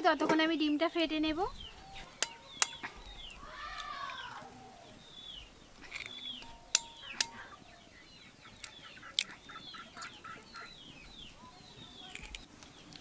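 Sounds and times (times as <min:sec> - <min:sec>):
chickens calling: 0:01.4 - 0:13.0
eggs cracking on steel bowl: 0:02.0 - 0:04.3, 0:05.9 - 0:07.4, 0:12.0 - 0:13.0.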